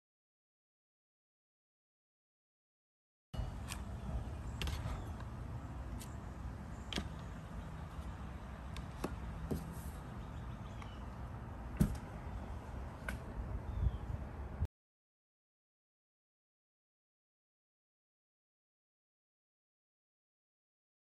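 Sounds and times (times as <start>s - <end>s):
low rumbling background noise: 3.4s - 14.7s.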